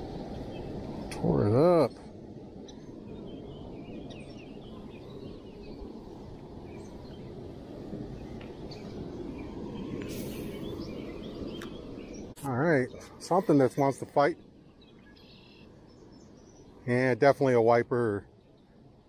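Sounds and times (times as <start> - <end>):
faint bird chirps: 8.2 - 17.1.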